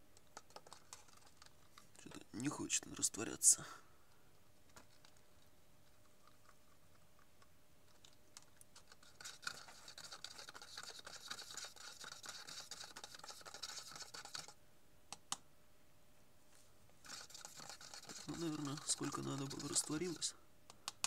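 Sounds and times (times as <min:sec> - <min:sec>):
crystals scraping in a plastic cup: 0:08.8 - 0:14.6, 0:17.0 - 0:20.4.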